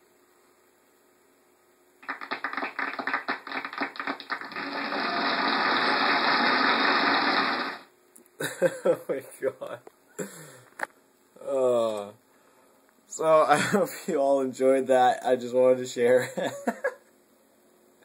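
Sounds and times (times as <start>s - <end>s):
dense crackling noisy rush: 2.0s - 7.9s.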